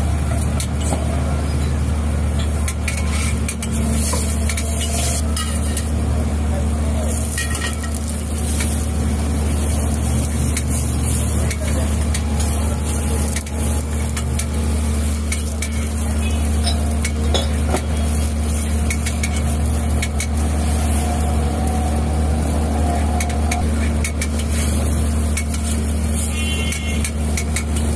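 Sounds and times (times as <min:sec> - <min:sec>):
food sizzling on a griddle: 0:02.4 - 0:06.0, 0:06.9 - 0:27.9
light clicks and scrapes: 0:02.7 - 0:05.9.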